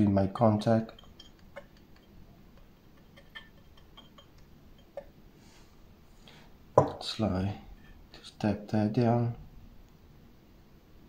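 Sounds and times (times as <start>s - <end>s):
light metal taps and ticks: 0.9s - 5.2s.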